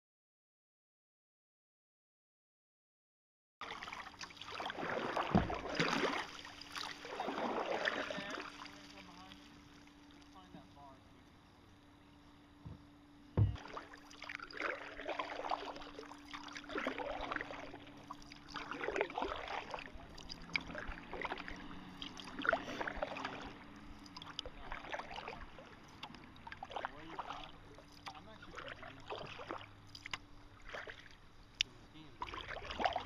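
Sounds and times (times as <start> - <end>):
paddle splashing water: 3.6 - 11.1, 13.4 - 33.0
paddle thump against canoe: 5.0 - 6.3, 13.4 - 13.9.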